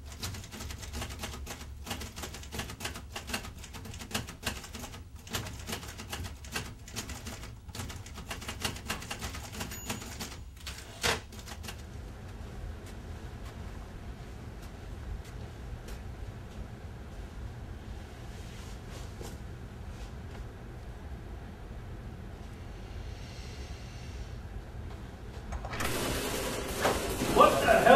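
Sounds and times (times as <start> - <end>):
typewriter keys clacking: 0.0 - 11.8.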